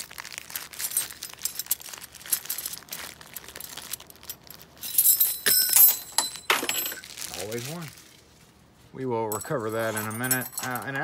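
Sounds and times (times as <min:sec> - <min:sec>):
plastic bag crinkling: 0:00.0 - 0:05.4, 0:06.0 - 0:08.4
metal keys clinking: 0:00.7 - 0:07.0, 0:09.4 - 0:11.0.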